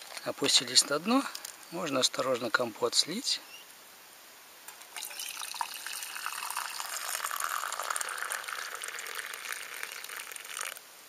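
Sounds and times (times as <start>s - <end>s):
liquid pouring into metal mug: 4.9s - 10.8s.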